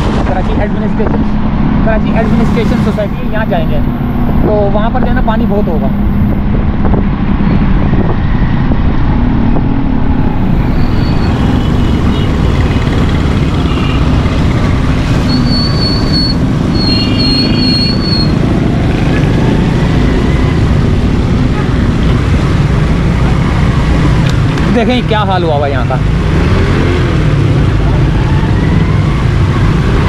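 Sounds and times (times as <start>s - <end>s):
wind rushing over microphone: 0.0s - 16.7s, 18.2s - 24.7s.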